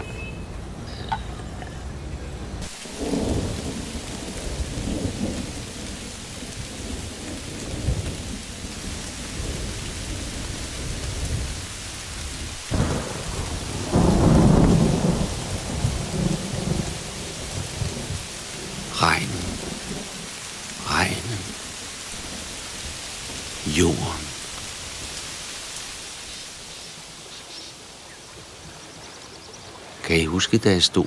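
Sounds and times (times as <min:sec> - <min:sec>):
steady rain pouring: 0:00.0 - 0:31.0
thunder rumbling: 0:02.4 - 0:25.4.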